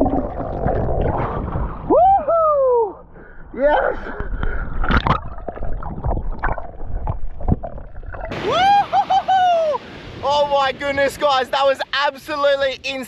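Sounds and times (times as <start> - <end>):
water sloshing and splashing: 0.0 - 1.9, 4.0 - 8.5.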